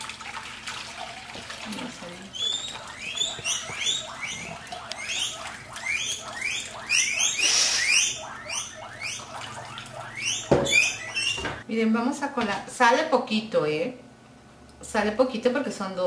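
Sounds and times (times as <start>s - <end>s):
liquid pouring through strainer: 0.0s - 7.7s
water splashing: 0.0s - 11.6s
animal chirps: 2.3s - 11.6s
knock: 10.5s - 10.8s.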